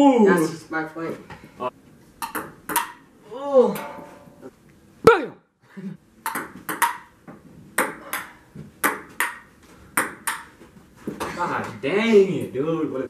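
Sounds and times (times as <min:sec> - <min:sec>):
ping-pong ball clicking: 0:02.2 - 0:03.0, 0:06.2 - 0:07.1, 0:10.0 - 0:10.5.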